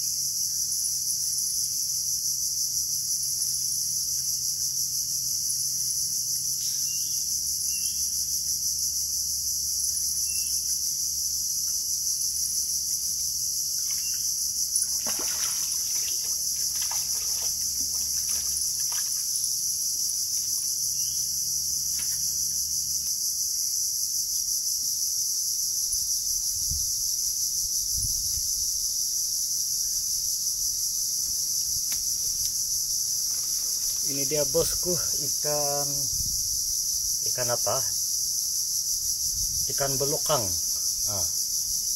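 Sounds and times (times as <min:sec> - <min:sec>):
high-pitched insect chorus: 0:00.0 - 0:41.9
fish thrashing and splashing: 0:14.8 - 0:19.3.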